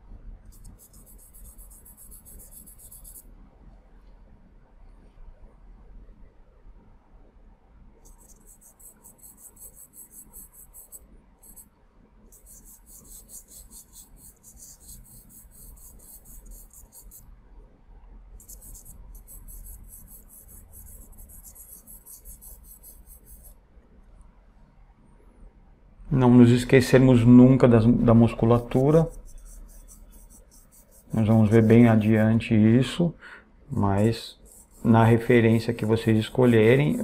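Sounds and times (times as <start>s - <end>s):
charcoal pencil scratching paper: 0.6s - 3.2s, 8.1s - 11.7s, 12.3s - 17.3s, 18.4s - 23.6s, 28.5s - 32.3s, 34.1s - 37.0s.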